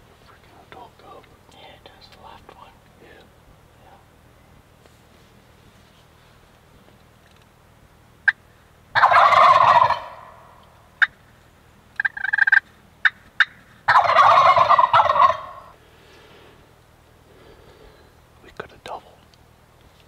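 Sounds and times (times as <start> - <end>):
turkeys gobbling: 8.2 - 11.2, 12.0 - 15.8.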